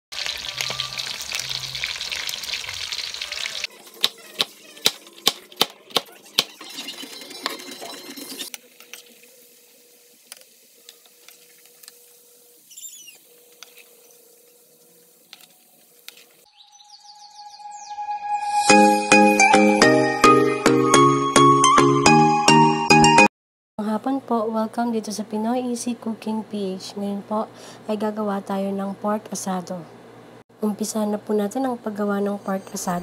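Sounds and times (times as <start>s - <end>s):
meat sizzling in a wok: 0.1s - 5.3s, 8.3s - 16.5s.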